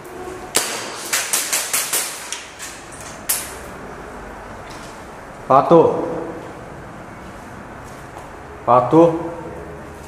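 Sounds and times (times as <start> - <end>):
airsoft gun shots echoing: 0.6 - 2.4.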